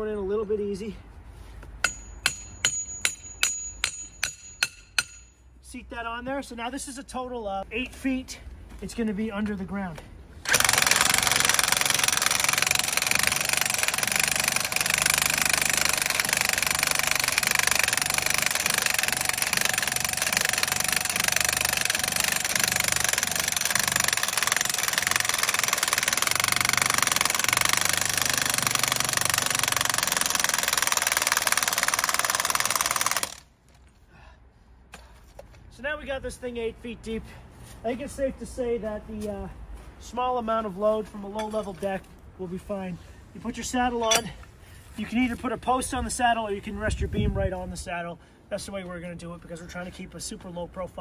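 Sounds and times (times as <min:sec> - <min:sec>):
impact wrench hammering: 0:01.8 - 0:05.4, 0:10.5 - 0:33.5.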